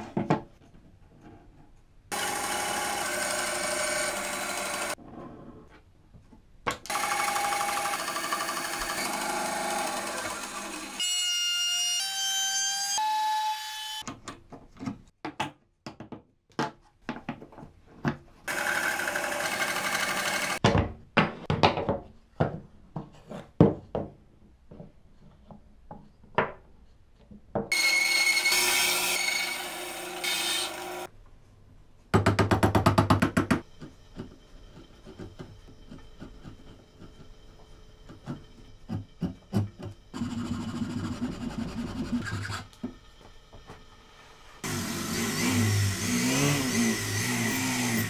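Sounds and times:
power tool noise: 2.1 - 5.0, 6.9 - 11.1, 18.5 - 20.6, 27.7 - 31.1, 44.6 - 48.0
trim router whine: 2.1 - 5.0, 6.9 - 11.0, 44.6 - 48.0.

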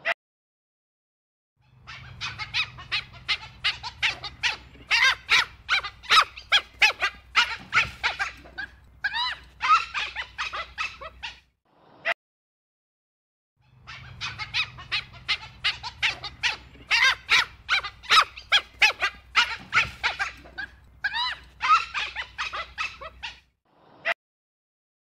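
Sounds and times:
faint low hum: 1.6 - 11.3, 13.6 - 23.3
dholes yipping and squeaking: 1.7 - 11.4, 13.6 - 23.5.

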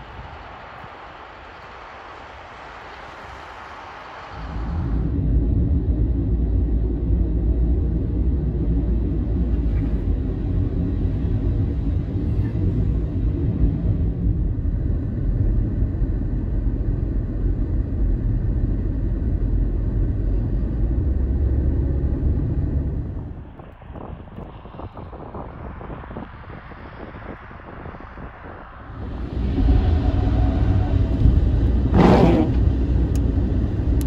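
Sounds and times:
vehicle road and engine rumble: 0.0 - 34.0.

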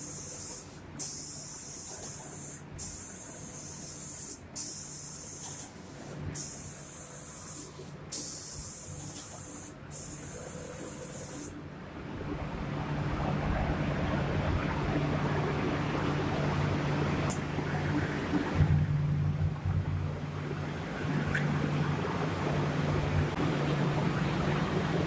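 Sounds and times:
spray gun hissing: 0.0 - 11.6
steady machine hum: 2.6 - 25.0.

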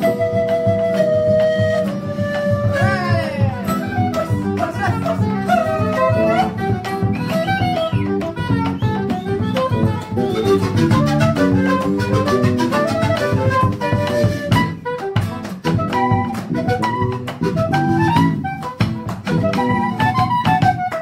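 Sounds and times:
folk band melody: 0.0 - 21.0
steady drum beat: 2.5 - 5.5.

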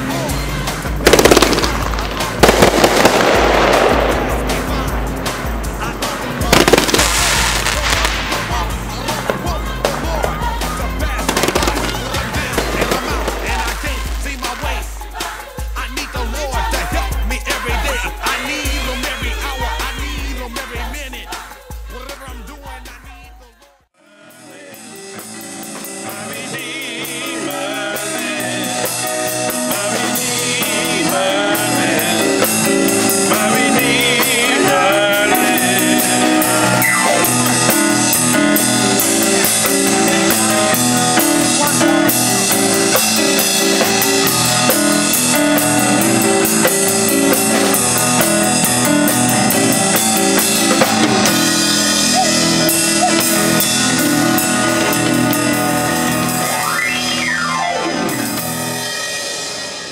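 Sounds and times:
guitar: 0.0 - 23.1, 24.0 - 59.9
drum kit: 0.0 - 59.9
keyboard: 0.0 - 59.9
woman singing: 6.0 - 23.8.

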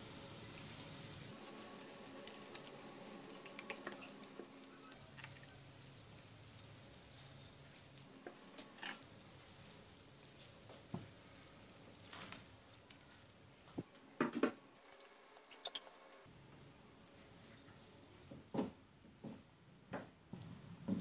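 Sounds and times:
broth bubbling at a simmer: 0.0 - 14.2.

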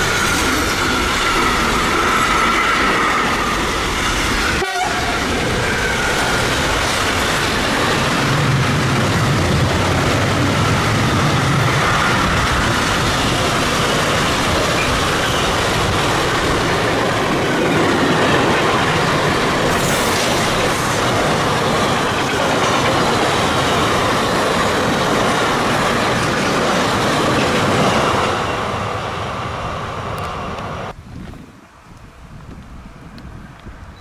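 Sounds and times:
train wheels rumbling on rails: 0.0 - 34.0.

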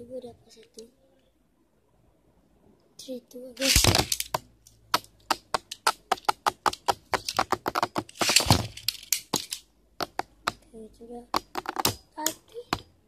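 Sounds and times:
spinning tops clicking together: 8.0 - 9.7.

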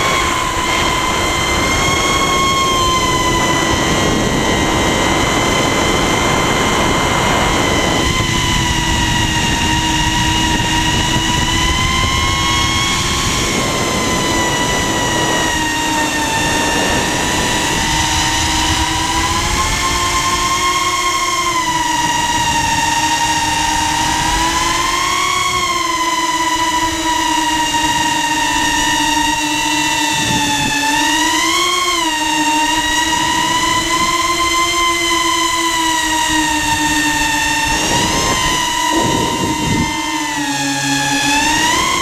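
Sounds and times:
quadcopter motors whining: 0.0 - 42.0
rushing noise: 32.6 - 42.0.

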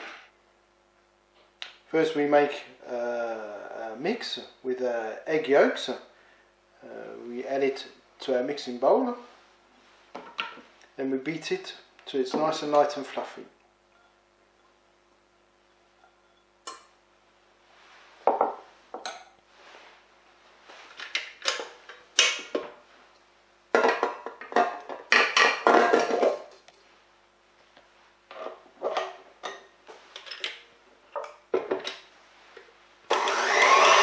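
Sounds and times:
stand mixer running: 33.1 - 34.0.

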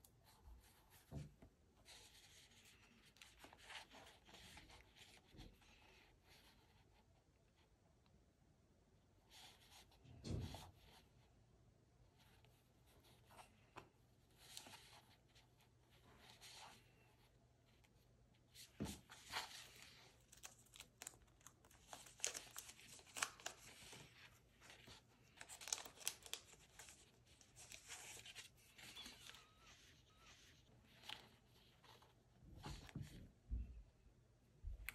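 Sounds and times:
plastic stickers crinkling and peeling: 19.1 - 32.0.

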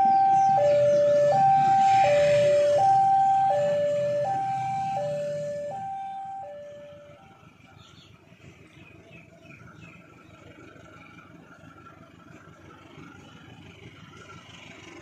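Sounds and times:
two-tone crossing alarm: 0.0 - 7.4.

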